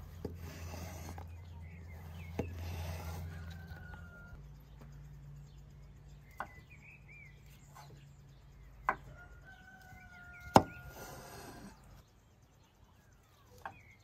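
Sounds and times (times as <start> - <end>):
knife scraping board: 0.0 - 1.4, 2.0 - 4.0
faint birds chirping: 0.0 - 14.0
knife chopping on wooden board: 10.5 - 10.8.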